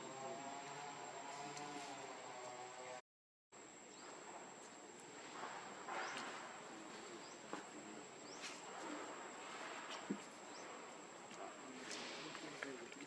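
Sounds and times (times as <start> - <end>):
insect drone: 0.0 - 3.0.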